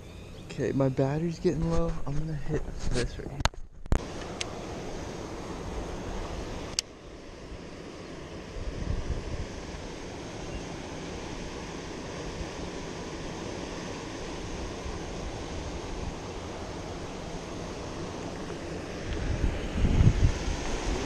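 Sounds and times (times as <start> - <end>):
wind buffeting microphone: 8.5 - 9.9, 14.3 - 21.0.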